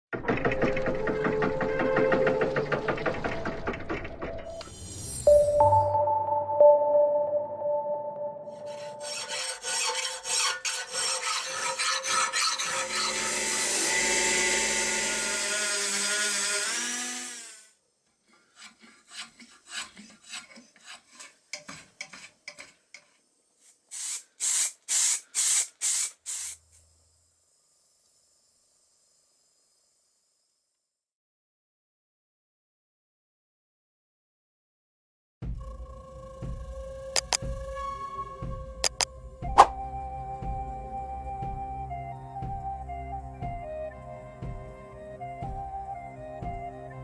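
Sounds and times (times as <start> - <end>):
intro jingle: 5.2 - 9.1
hand tool rasping: 8.6 - 17.3, 18.2 - 26.6.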